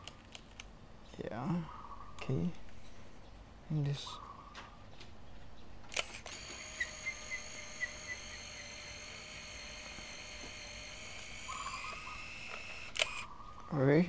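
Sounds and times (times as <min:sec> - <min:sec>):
camera motor rewinding film: 0:05.9 - 0:13.3.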